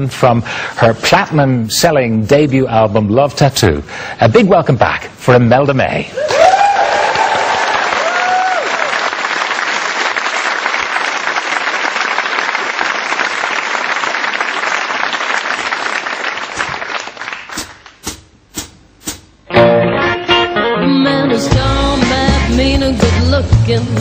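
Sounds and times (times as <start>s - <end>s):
audience applauding: 6.3s - 18.0s.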